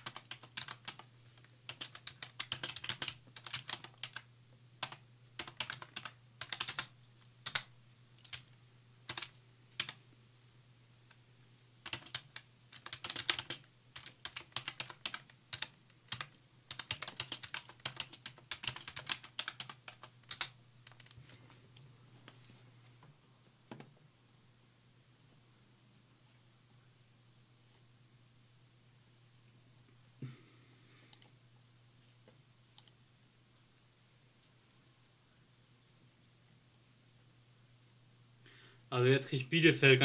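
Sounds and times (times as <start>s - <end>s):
typing on computer keyboard: 0.0s - 1.1s, 1.7s - 4.2s, 4.8s - 8.5s, 9.1s - 10.0s, 11.8s - 21.2s
low steady hum: 0.0s - 40.0s.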